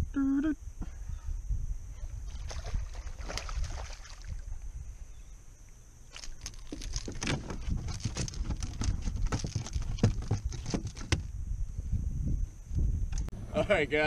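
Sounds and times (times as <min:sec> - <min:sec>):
fish flopping on plastic deck: 0:02.3 - 0:04.4, 0:06.1 - 0:11.2.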